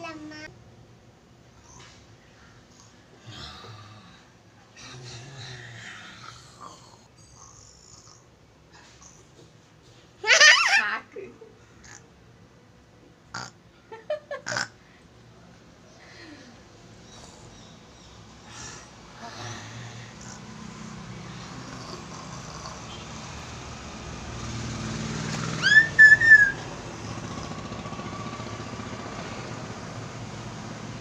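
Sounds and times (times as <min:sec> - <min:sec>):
vehicle traffic rumble: 0:16.5 - 0:31.0
high whistling tone pulses: 0:25.5 - 0:26.8.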